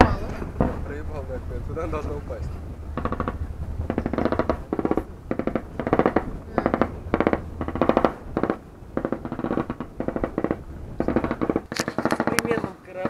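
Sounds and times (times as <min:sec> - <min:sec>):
machine-gun fire bursts: 0:03.0 - 0:13.0.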